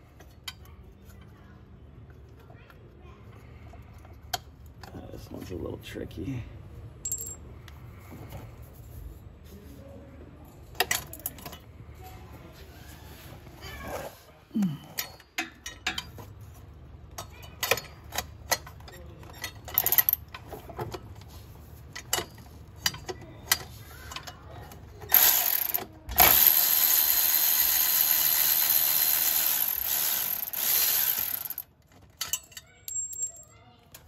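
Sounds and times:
power ratchet running: 25.1s - 31.7s
ratchet clicking: 25.1s - 32.4s.

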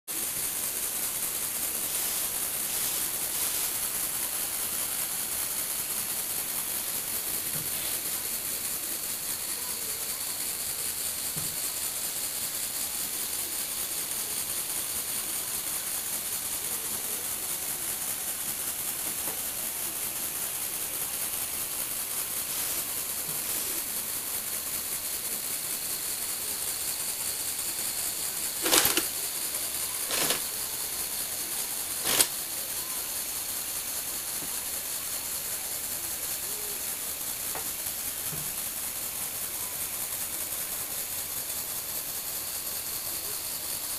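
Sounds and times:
toy vehicle motor whirring: 0.1s - 43.9s
sharp clack: 28.6s - 29.2s, 30.1s - 30.5s, 32.0s - 32.4s.

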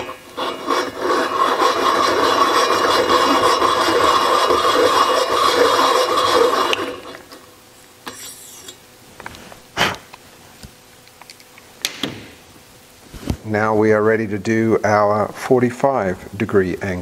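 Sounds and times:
valve seat cutter scraping: 0.0s - 7.4s.

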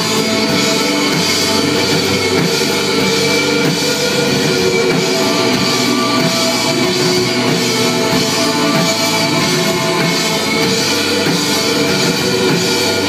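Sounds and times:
bass guitar: 0.0s - 13.0s
drum kit: 0.0s - 13.0s
electric guitars: 0.0s - 13.0s.

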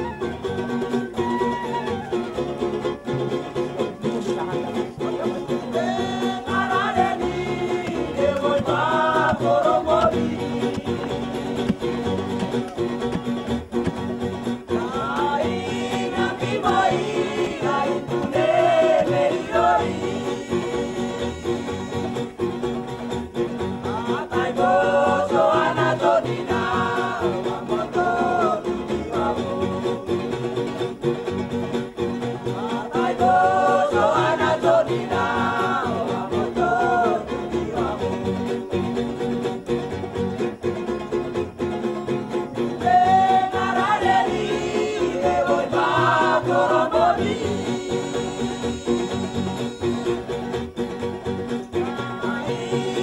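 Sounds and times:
song with singing voice: 0.0s - 30.8s, 32.1s - 39.0s, 42.5s - 50.6s, 51.5s - 53.0s.

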